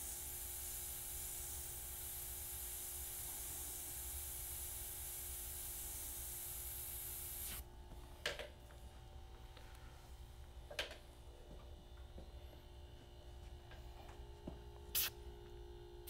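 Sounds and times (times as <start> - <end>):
airbrush spraying hiss: 0.0 - 7.6, 14.9 - 15.1.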